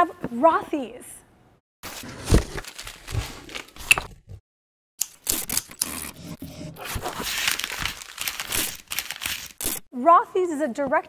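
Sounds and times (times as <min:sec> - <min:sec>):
cardboard and paper scraping and crinkling: 0:01.8 - 0:04.2, 0:05.8 - 0:09.8
cardboard box being opened: 0:01.9 - 0:03.8.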